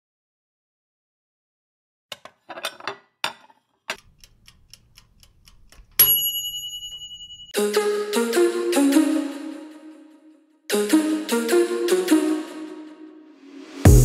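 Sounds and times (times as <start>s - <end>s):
scattered clicks and knocks: 3.4s - 6.2s
clock-like ticking: 4.0s - 6.1s
bright bell ding: 6.0s - 7.6s.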